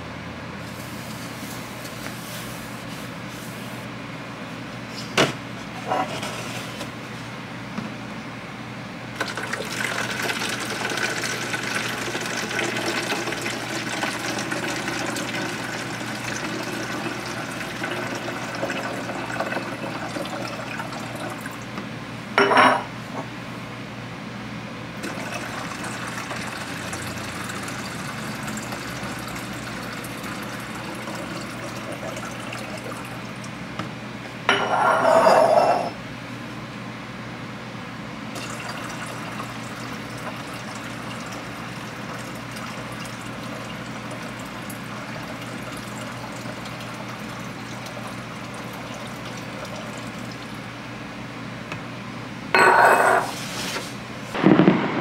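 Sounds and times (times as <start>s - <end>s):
water running: 9.2s - 21.7s, 25.0s - 33.6s, 38.4s - 50.7s.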